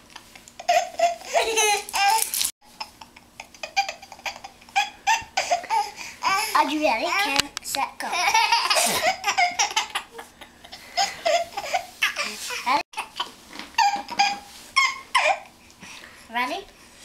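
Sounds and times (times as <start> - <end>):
baby laughing: 0.6 - 6.6, 8.1 - 15.5.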